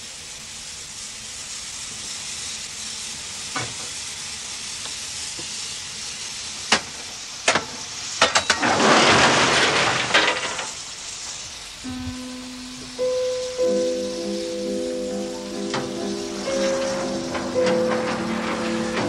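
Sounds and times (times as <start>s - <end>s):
steady hiss: 0.0s - 19.0s
falling coal rattling: 6.6s - 19.0s.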